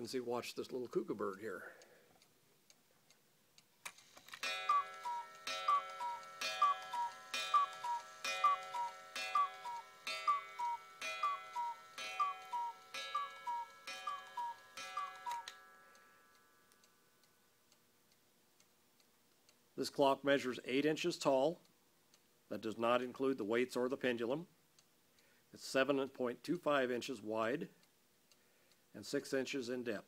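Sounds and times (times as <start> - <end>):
clock mechanism clack: 4.2 - 15.7
cuckoo clock call: 4.4 - 17.5
clock ticking faintly: 4.4 - 20.3.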